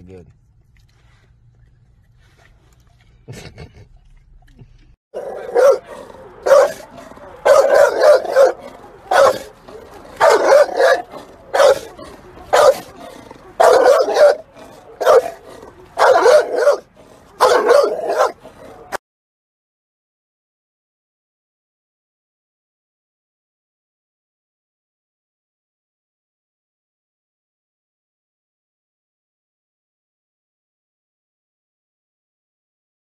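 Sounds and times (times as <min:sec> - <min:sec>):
dog barking: 0:05.2 - 0:19.0.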